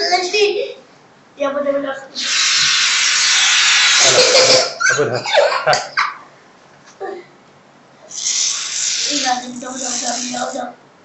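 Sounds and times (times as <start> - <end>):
spray can hissing: 8.1 - 10.6.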